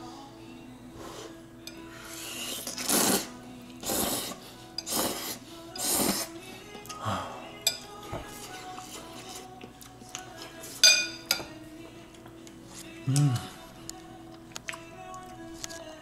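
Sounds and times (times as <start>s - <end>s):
faint background music: 0.0s - 16.0s
man slurping noodles: 2.1s - 6.3s.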